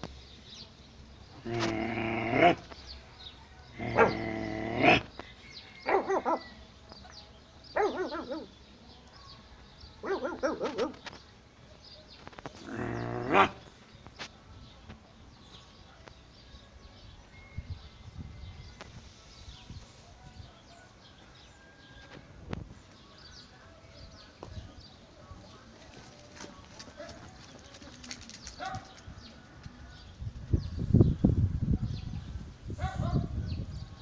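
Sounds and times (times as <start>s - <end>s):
puppy barking: 3.8s - 4.2s, 5.9s - 6.5s, 7.8s - 8.5s, 10.0s - 11.0s.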